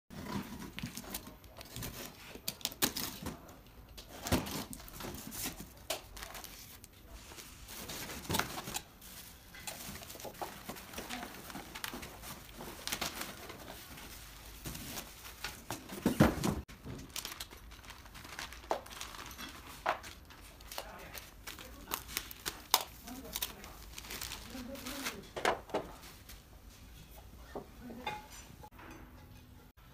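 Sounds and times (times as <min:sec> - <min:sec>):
plastic wrap crinkling: 0:00.3 - 0:16.1, 0:16.7 - 0:26.4
cardboard rustling and knocking: 0:09.8 - 0:17.2.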